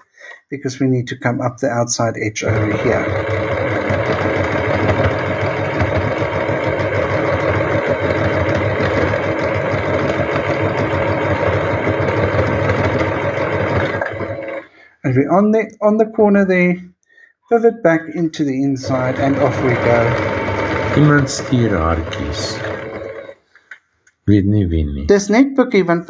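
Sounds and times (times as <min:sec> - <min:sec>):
sewing machine stitching: 0:02.4 - 0:14.7, 0:18.8 - 0:23.4.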